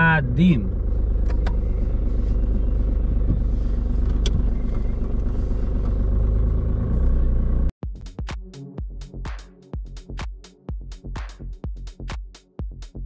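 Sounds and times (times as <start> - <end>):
car engine idling: 0.0 - 7.7.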